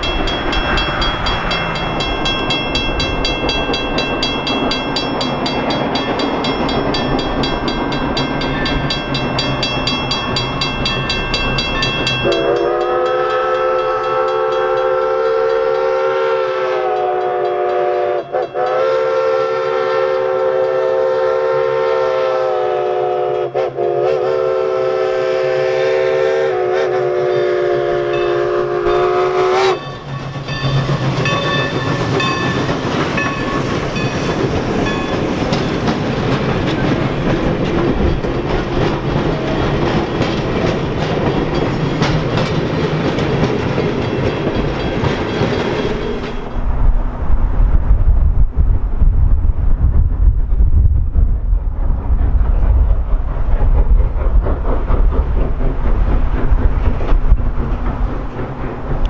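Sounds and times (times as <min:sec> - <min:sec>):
level-crossing bell ringing: 0:00.0 - 0:14.9, 0:29.7 - 0:35.9
train rolling past: 0:00.0 - 0:59.0
steam locomotive whistle: 0:11.8 - 0:32.5.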